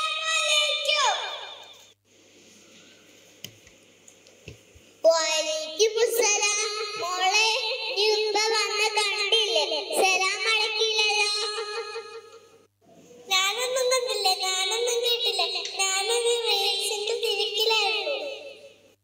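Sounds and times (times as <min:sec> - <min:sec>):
child singing: 0:05.1 - 0:12.0, 0:13.3 - 0:18.5.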